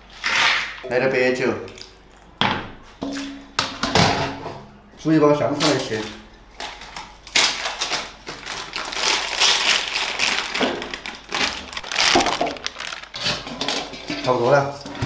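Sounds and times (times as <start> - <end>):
plastic bag crinkling: 5.6 - 14.6.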